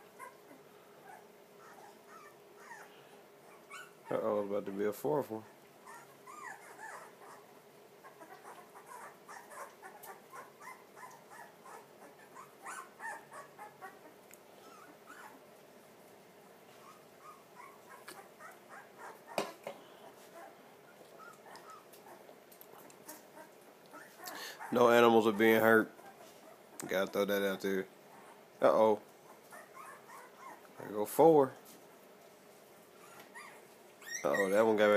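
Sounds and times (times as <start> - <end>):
puppies whimpering: 0.0 - 4.4, 5.4 - 15.5, 16.7 - 27.2, 29.2 - 31.1, 32.9 - 34.9.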